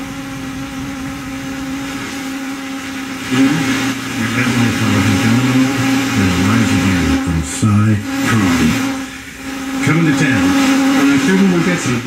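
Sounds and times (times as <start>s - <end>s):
radio static hissing: 0.0s - 12.0s
steady hum: 0.0s - 12.0s
radio station broadcast: 2.7s - 12.0s.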